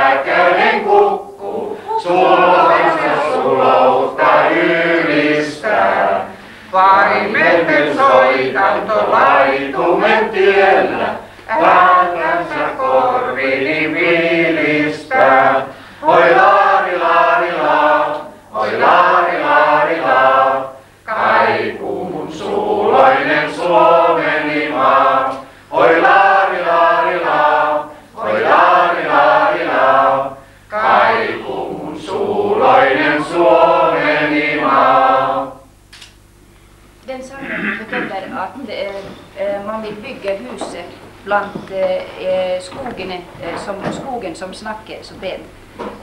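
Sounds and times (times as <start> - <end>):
woman singing unaccompanied: 6.7 - 13.5, 14.6 - 17.0.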